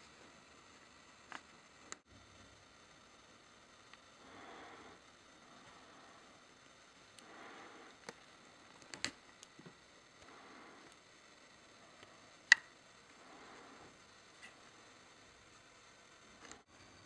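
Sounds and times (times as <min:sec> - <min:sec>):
sharp clicks: 0:12.0 - 0:12.8.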